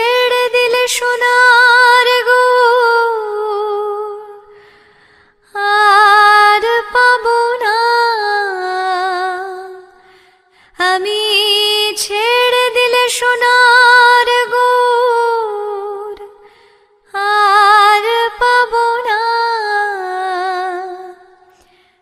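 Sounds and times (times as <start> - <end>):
woman singing: 0.0 - 4.7, 5.4 - 21.7.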